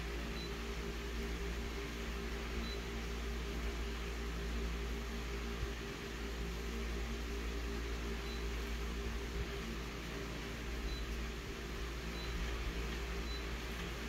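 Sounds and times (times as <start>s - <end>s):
copier fan and motor hum: 0.0s - 14.0s
low electrical drone: 0.0s - 14.0s
touch-panel beep: 0.4s - 0.6s, 10.8s - 11.2s, 12.0s - 12.5s, 13.2s - 13.6s.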